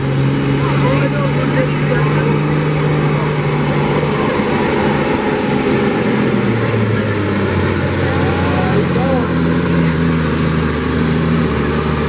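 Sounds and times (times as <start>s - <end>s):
diesel truck engine under load: 0.0s - 12.0s.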